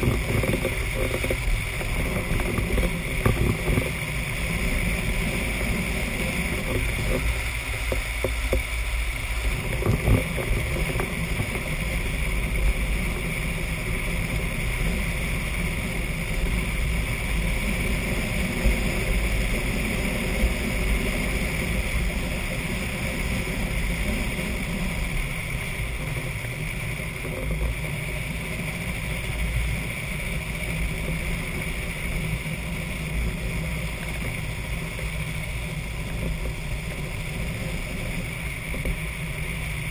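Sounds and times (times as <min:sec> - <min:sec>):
hard wheels rolling on asphalt: 0:00.0 - 0:39.9
wind buffeting microphone: 0:09.3 - 0:27.8.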